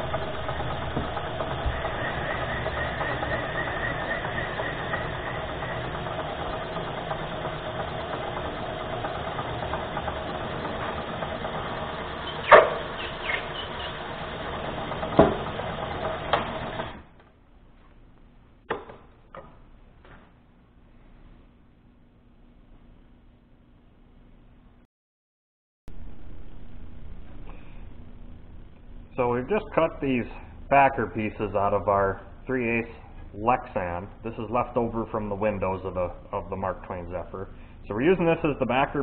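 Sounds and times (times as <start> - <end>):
milling machine hum: 0.0 - 17.2
sharp knocks: 15.0 - 15.6.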